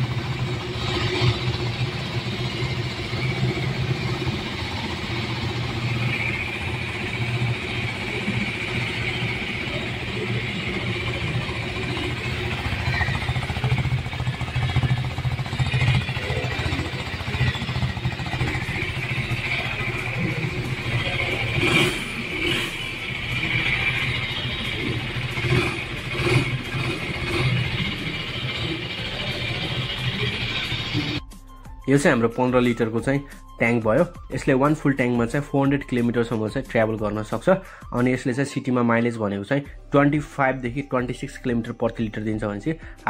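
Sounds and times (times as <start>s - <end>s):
motorcycle engine idling: 0.0s - 31.2s, 32.6s - 38.2s, 40.6s - 43.0s.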